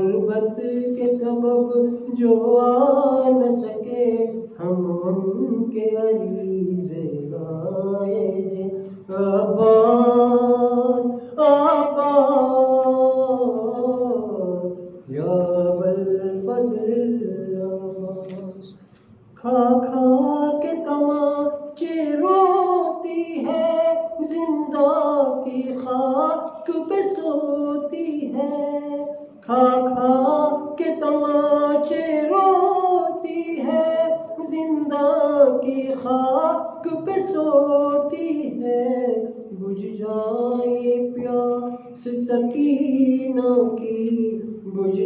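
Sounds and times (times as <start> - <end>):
man chanting into a microphone: 0.0 - 45.0.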